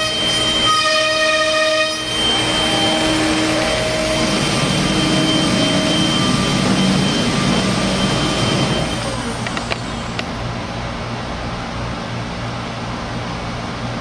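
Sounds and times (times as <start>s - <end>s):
cnc router running: 0.0s - 10.2s
spindle whine: 0.0s - 10.4s.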